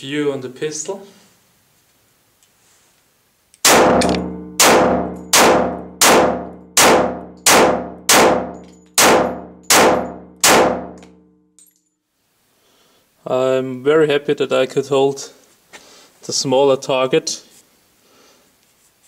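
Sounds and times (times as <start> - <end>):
pistol shots echoing: 3.6 - 11.0.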